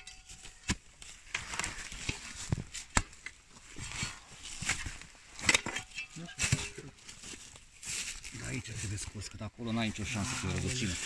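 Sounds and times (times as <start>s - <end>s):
shovel scraping stony soil: 0.0s - 6.9s.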